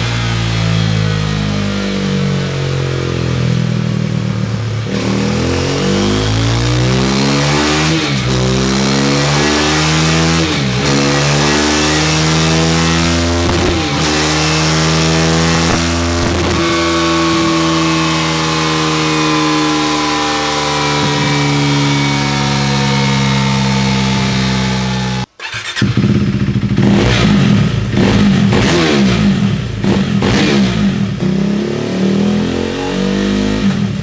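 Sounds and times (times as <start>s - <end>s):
motorcycle engine revving: 0.0s - 34.0s.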